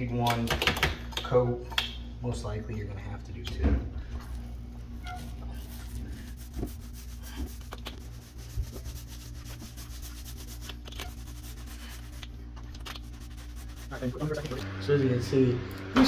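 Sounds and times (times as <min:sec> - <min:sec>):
paint roller rubbing on ceiling: 0:05.0 - 0:15.0.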